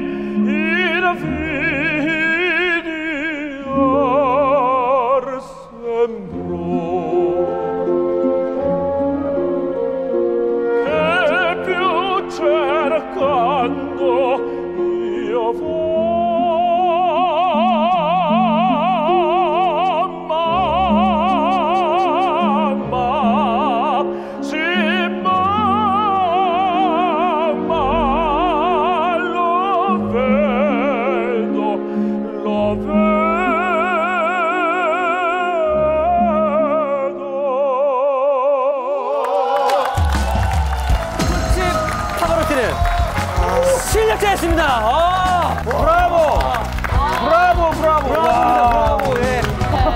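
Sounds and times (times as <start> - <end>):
man singing opera: 0.0 - 40.3, 41.1 - 49.9
instrumental accompaniment: 40.0 - 49.9.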